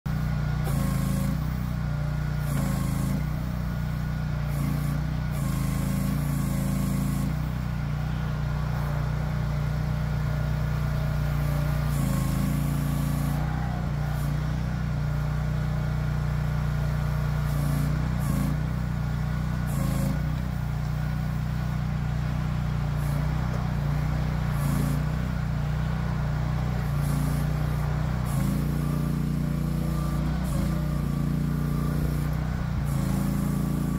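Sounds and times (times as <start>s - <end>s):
mini excavator engine running: 0.0s - 33.9s.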